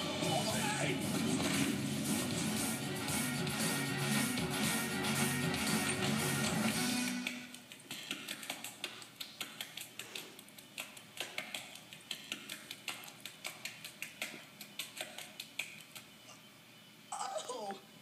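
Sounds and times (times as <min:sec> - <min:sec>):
hands clapping in clapping game: 0:07.2 - 0:16.2.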